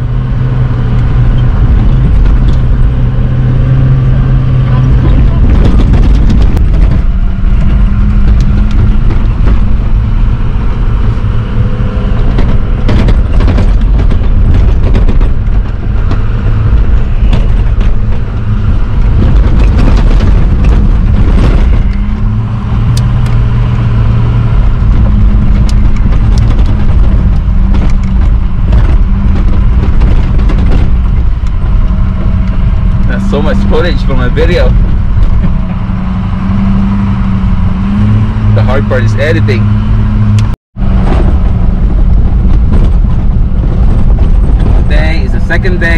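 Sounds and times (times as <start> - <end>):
engine drone: 0.0 - 45.9
knocks and rattles over bumps: 0.0 - 45.9
low road rumble: 0.0 - 45.9.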